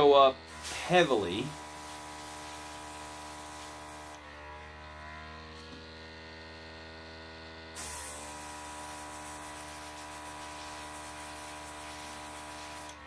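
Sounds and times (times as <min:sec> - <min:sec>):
airbrush compressor humming: 0:00.0 - 0:13.0
airbrush spray hiss: 0:00.5 - 0:04.2, 0:07.8 - 0:13.0.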